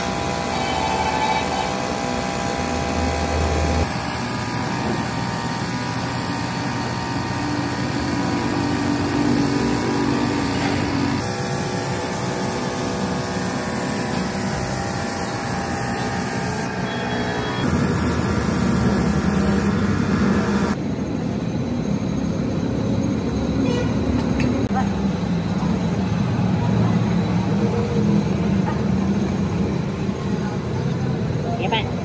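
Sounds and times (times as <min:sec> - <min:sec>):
paint spray gun hissing: 0:00.0 - 0:20.8
steady mechanical hum: 0:00.0 - 0:32.0.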